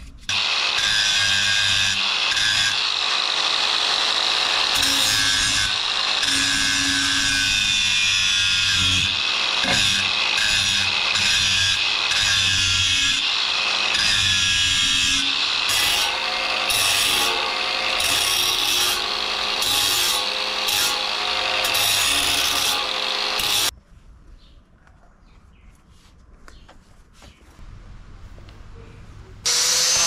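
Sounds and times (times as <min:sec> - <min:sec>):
angle grinder grinding steel: 0:00.3 - 0:23.7, 0:29.5 - 0:30.0.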